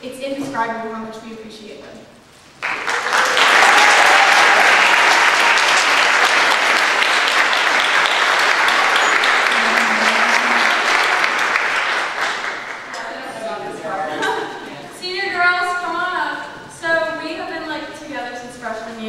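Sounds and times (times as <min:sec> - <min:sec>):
crowd applauding: 0:02.6 - 0:13.6.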